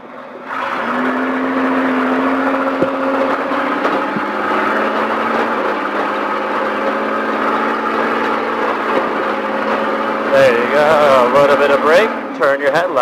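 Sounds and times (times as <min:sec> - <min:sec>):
truck engine accelerating: 0:00.0 - 0:13.0.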